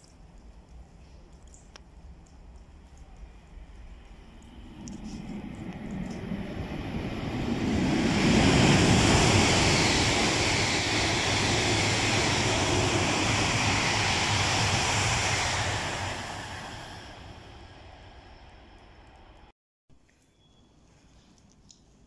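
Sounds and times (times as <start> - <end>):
high-speed train passing: 3.5 - 19.5.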